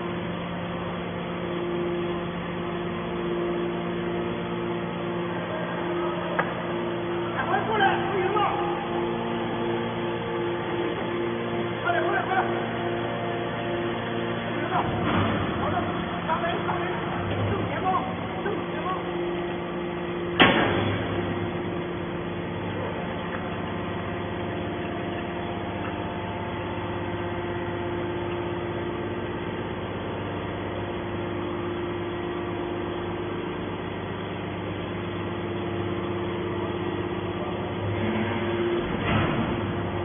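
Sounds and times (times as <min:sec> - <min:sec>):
hydraulic baler humming: 0:00.0 - 0:40.0
sharp bang: 0:20.4 - 0:21.1.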